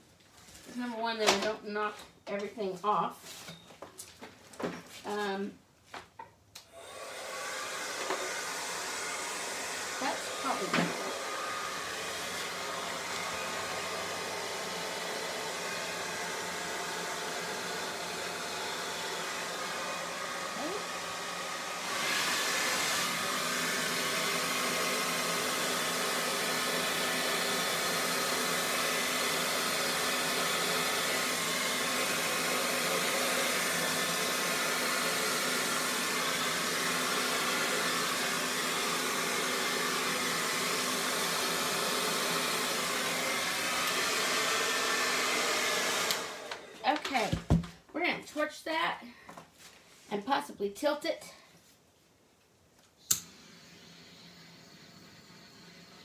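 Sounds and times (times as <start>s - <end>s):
hair dryer blowing: 6.6s - 47.8s, 53.0s - 56.0s.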